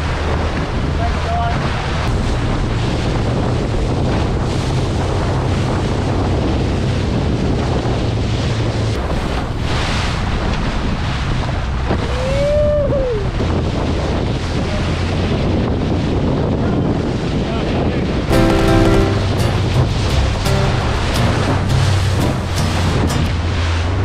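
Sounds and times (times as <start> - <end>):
wind buffeting microphone: 0.0 - 18.3
water and waves rushing: 0.0 - 24.0
low engine drone: 18.3 - 24.0.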